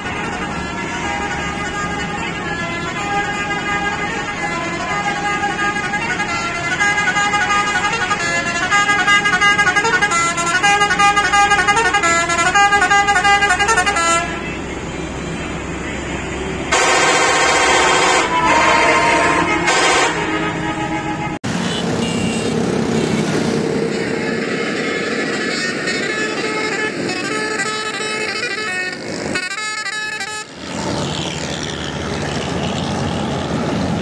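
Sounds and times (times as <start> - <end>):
musical bus horn tune: 0.0 - 23.2, 23.8 - 30.6
harsh horn blast: 0.0 - 31.3
road traffic noise: 0.0 - 34.0.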